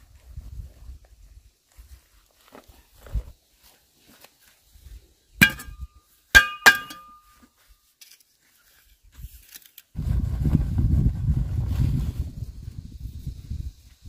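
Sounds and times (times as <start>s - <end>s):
hard objects clinking: 5.4s - 5.8s, 6.4s - 7.3s.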